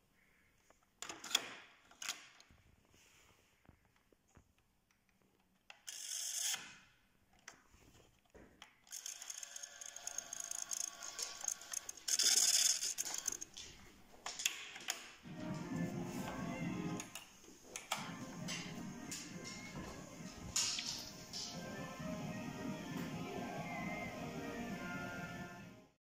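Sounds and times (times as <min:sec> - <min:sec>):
rapid clicks of tape winding: 0:08.9 - 0:13.6.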